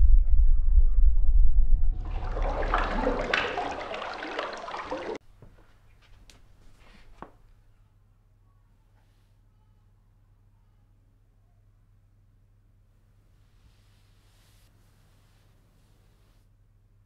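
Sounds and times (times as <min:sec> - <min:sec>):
low rumble: 0:00.0 - 0:04.0
water dripping: 0:01.9 - 0:06.5
bath water splashing: 0:02.0 - 0:07.3.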